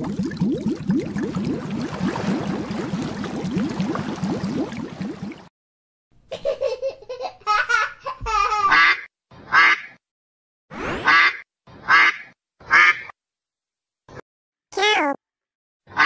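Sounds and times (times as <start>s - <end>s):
bubbling water sound effect: 0.0s - 5.5s
child giggling: 6.3s - 8.8s.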